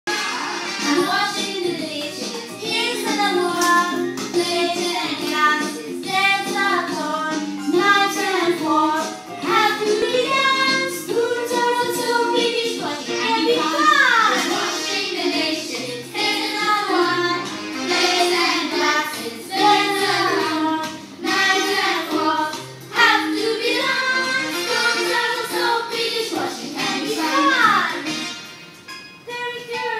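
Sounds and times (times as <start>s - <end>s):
musical accompaniment: 0.1s - 29.9s
children singing: 2.6s - 28.1s.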